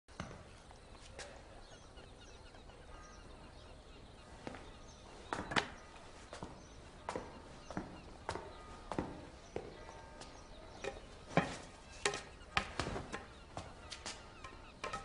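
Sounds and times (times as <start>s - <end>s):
sharp knocks and taps: 10.8s - 15.0s.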